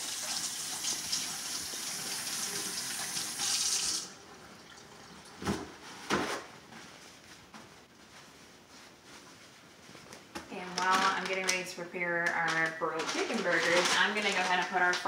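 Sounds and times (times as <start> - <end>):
faucet running over hands: 0.0 - 4.9.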